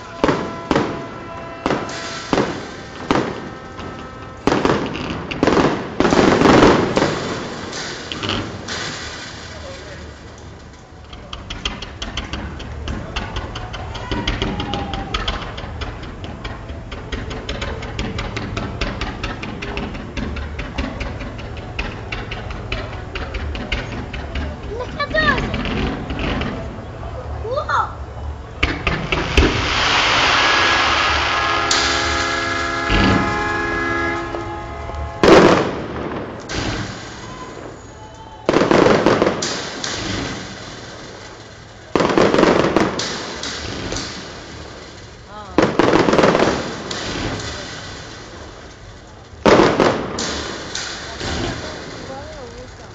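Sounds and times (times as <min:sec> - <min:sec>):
steady horn note: 0:00.0 - 0:05.5, 0:30.5 - 0:35.8
fireworks bangs and crackles: 0:00.0 - 0:52.9.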